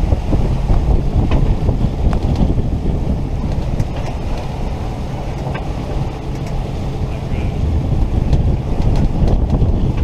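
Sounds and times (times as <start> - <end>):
boat engine drone: 0.0 - 10.0
rushing water: 0.0 - 10.0
wind buffeting microphone: 0.0 - 10.0.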